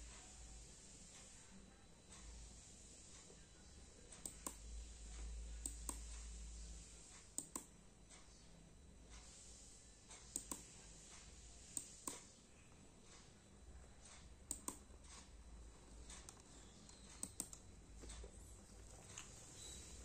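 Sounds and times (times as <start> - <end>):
sharp clicks: 7.4 - 7.7, 10.3 - 10.6, 14.5 - 14.9, 16.1 - 18.2.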